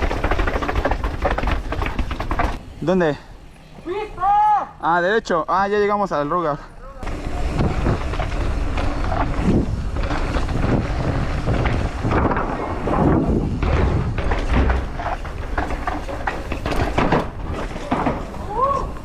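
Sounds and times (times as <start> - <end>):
bike knocking and rattling: 0.0 - 2.7, 7.0 - 19.0
tyres rumbling over dirt: 0.0 - 3.2, 7.0 - 19.0
wind buffeting microphone: 7.0 - 15.6.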